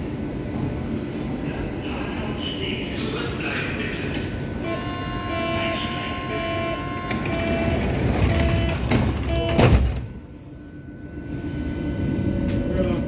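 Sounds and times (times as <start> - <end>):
two-tone warning beeps: 4.7 - 9.7
sliding doors shutting: 7.0 - 10.1.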